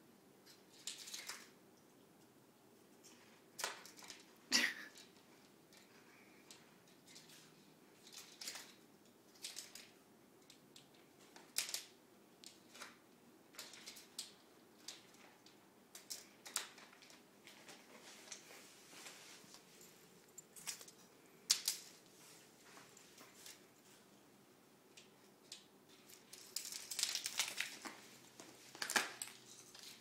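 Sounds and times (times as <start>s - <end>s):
plastic spoons clicking on tile: 8.0s - 17.2s, 20.6s - 22.0s.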